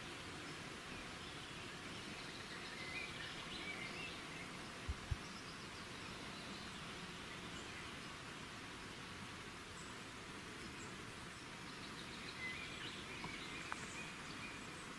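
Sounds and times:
faint outdoor background noise: 0.0s - 14.9s
soft low thumps: 4.9s - 5.2s.

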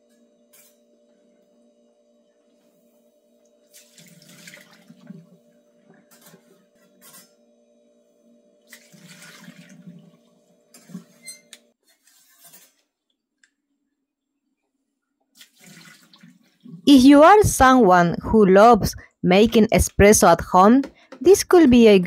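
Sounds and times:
water pouring into sink: 3.7s - 5.4s, 8.7s - 11.1s, 15.4s - 16.8s
steady hum: 16.6s - 22.0s.

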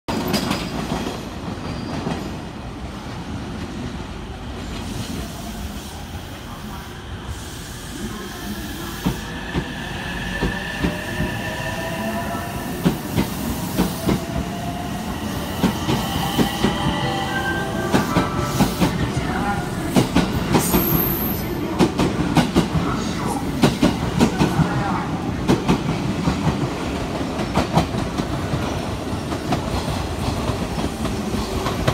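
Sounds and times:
electric train whine: 5.6s - 24.2s.

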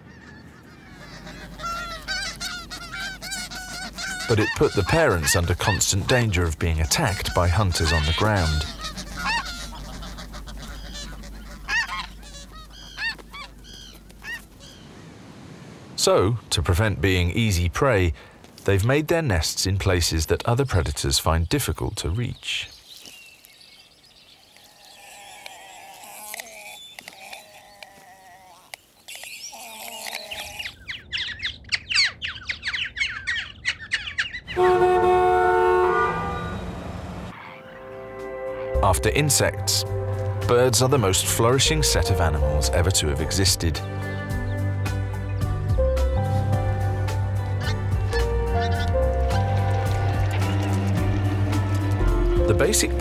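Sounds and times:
high falling bird squawks: 0.0s - 6.0s, 6.9s - 15.1s, 24.6s - 37.9s, 47.5s - 50.7s
geese honking: 0.0s - 14.9s, 32.0s - 45.3s, 46.2s - 53.0s
loud horn-like blare: 34.6s - 38.6s.

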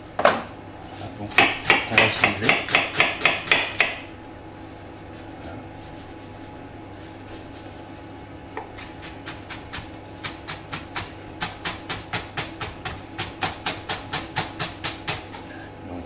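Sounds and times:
knife chopping on plastic board: 1.3s - 4.0s, 8.6s - 15.4s.

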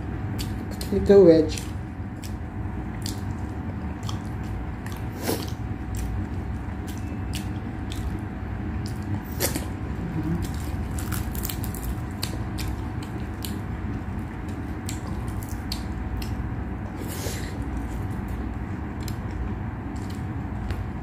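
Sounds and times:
steady low hum: 0.0s - 21.0s
wet chewing and mouth clicks: 0.3s - 16.5s, 17.7s - 20.9s.

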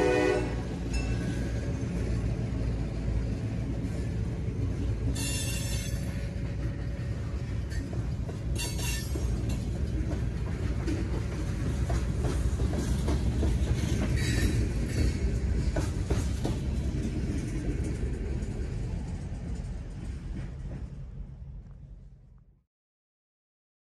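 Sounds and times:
freight train rumbling past: 0.0s - 22.4s
wheels clicking over rail joints: 0.7s - 21.8s.

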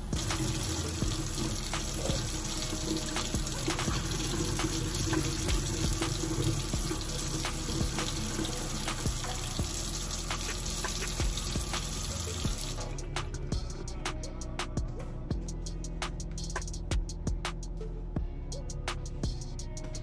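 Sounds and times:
faucet running into sink: 0.0s - 12.9s.

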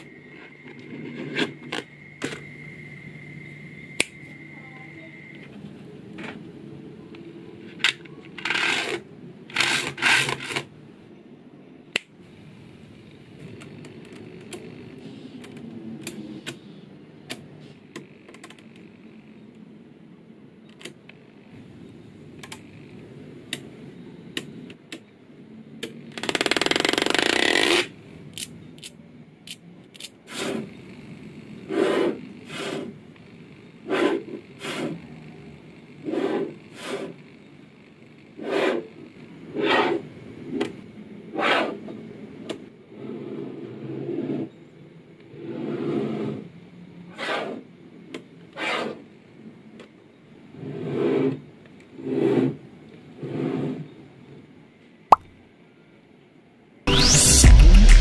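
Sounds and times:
rubbing and scraping of ball structure: 0.3s - 2.4s, 7.7s - 10.7s.

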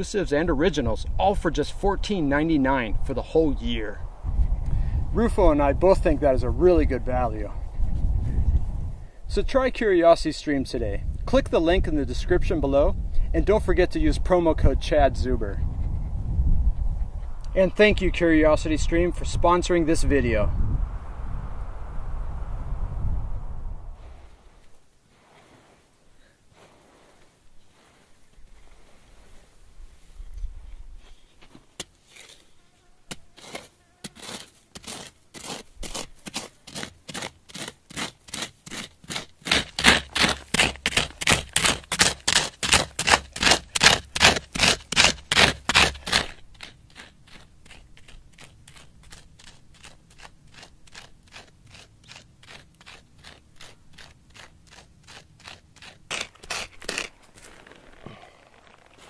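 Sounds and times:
digging into gravelly soil: 24.0s - 59.0s.

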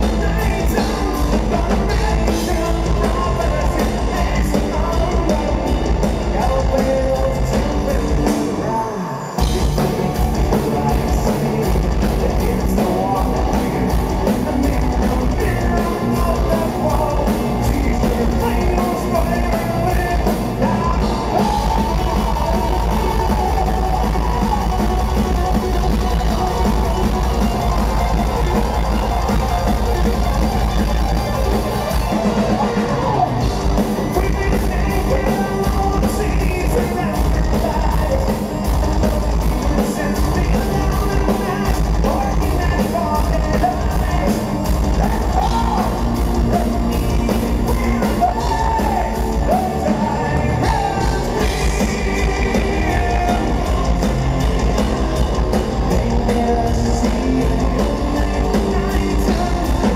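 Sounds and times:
metal band playing loud: 0.0s - 59.9s
person singing: 0.0s - 59.9s.

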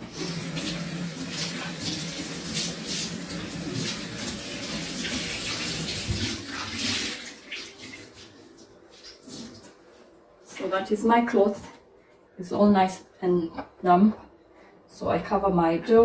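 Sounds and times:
tap water splashing: 2.6s - 8.3s.

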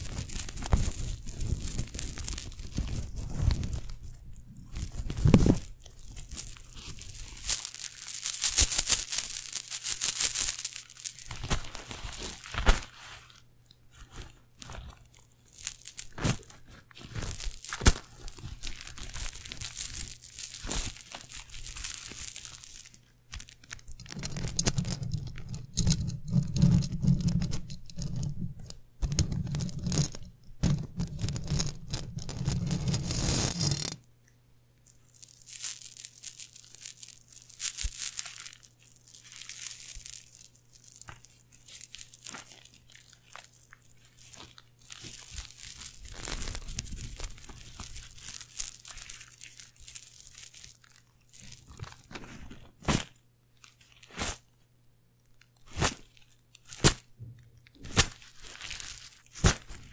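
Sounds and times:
coins rubbed against microphone: 0.0s - 12.6s, 15.0s - 23.0s, 29.3s - 34.0s, 35.2s - 50.7s.

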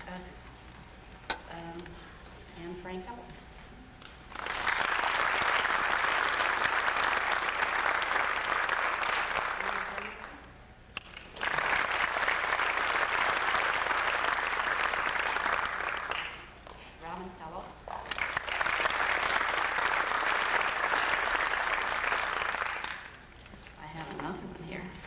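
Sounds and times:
audience applauding: 4.0s - 16.8s, 17.9s - 23.2s.

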